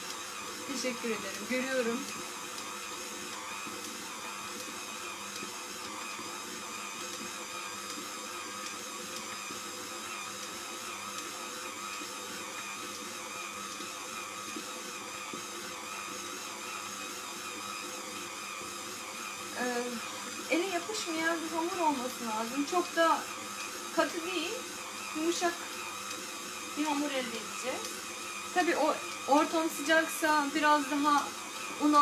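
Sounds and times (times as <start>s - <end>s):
stand mixer motor whirring: 0.0s - 32.0s.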